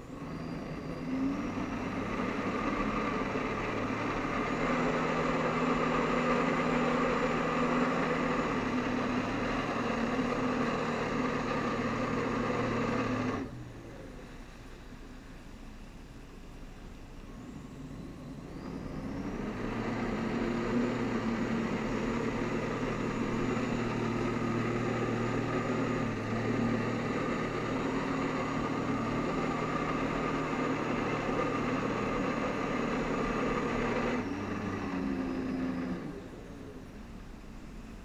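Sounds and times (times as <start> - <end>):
jet ski engine: 0.0 - 15.2, 17.1 - 38.0.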